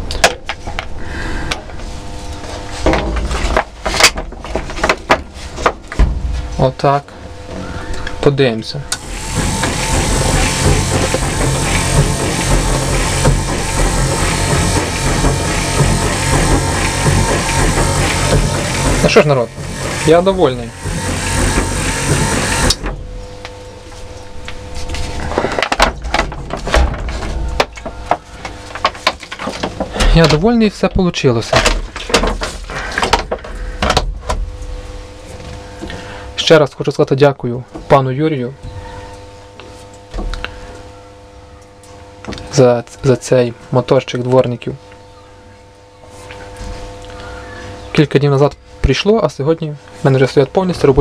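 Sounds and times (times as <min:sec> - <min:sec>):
wiper motor hum: 0:00.0 - 0:36.4
sharp knocks: 0:09.0 - 0:23.0
plastic bottle crackling: 0:23.5 - 0:30.5.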